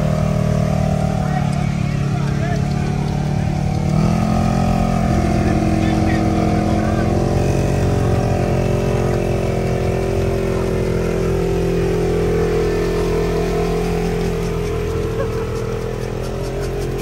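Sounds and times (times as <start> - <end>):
engine running steadily: 0.0 - 17.0.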